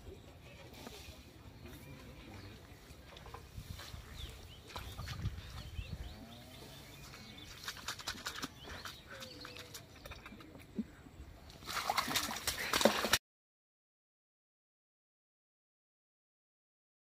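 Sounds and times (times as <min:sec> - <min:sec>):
muddy water splashing: 0:00.8 - 0:13.2.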